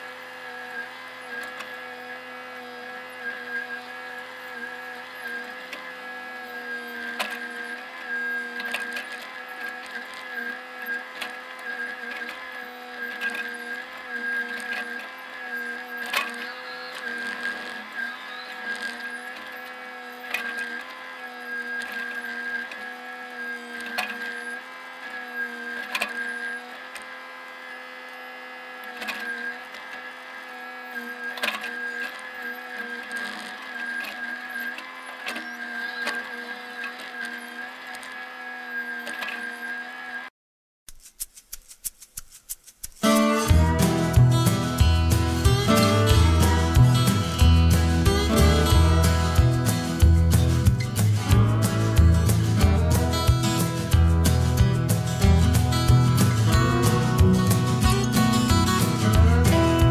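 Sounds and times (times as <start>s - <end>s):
excavator engine running: 0.0s - 39.5s, 41.9s - 59.9s
excavator diesel engine running: 43.0s - 59.9s
high whine: 43.0s - 59.9s.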